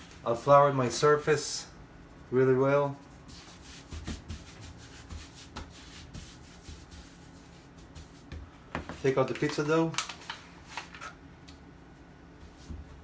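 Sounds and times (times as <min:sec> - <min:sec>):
hand brushing flour on countertop: 0:00.0 - 0:09.3.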